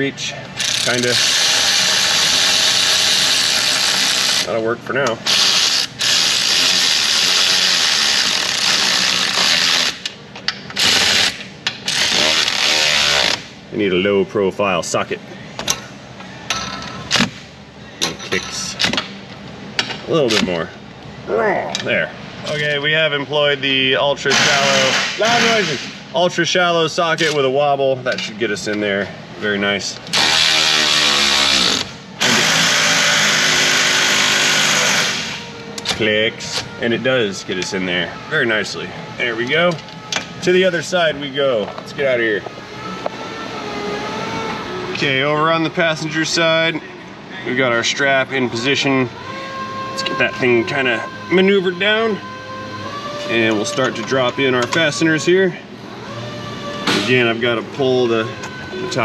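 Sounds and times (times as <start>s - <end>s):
power ratchet whirring: 0.6s - 4.5s, 5.2s - 13.5s, 30.1s - 45.2s, 47.8s - 59.0s.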